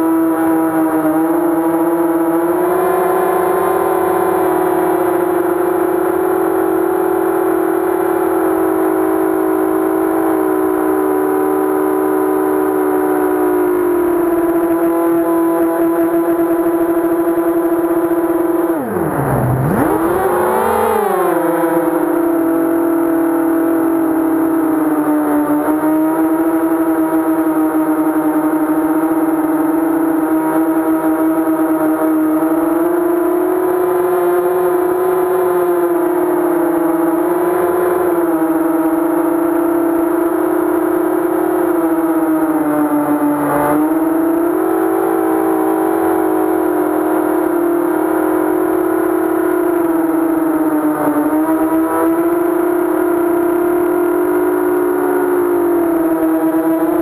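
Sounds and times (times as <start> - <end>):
drone motors whining: 0.0 - 27.5
quadcopter motors buzzing: 0.0 - 57.0.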